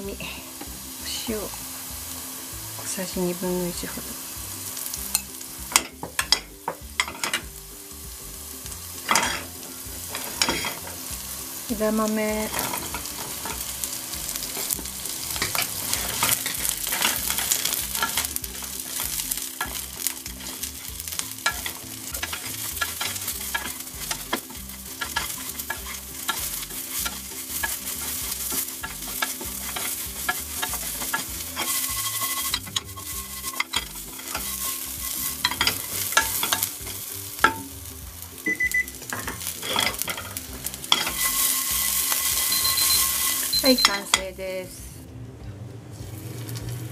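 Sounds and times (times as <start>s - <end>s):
food sizzling in frying pan: 0.0s - 44.9s, 46.0s - 46.9s
pods tumbling in pan: 8.6s - 44.3s
wooden spatula scraping: 12.4s - 37.4s, 39.0s - 43.8s.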